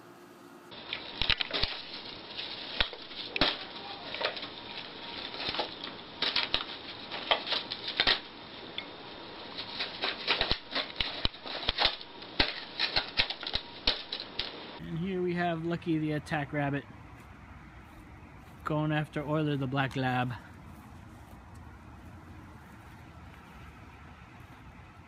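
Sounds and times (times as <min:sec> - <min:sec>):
paper crinkling and rustling: 0:00.7 - 0:08.4.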